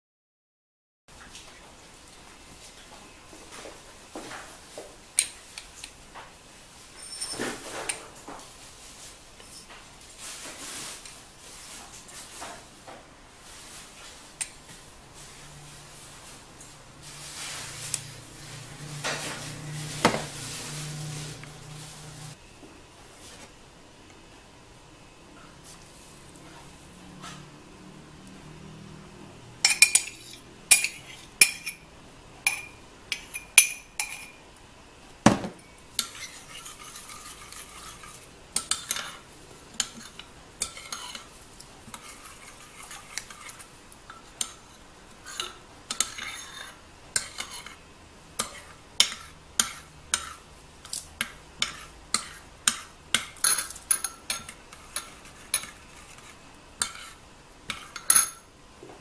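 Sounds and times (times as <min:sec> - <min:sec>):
spoon clinking in ceramic bowl: 0:32.5 - 0:34.4.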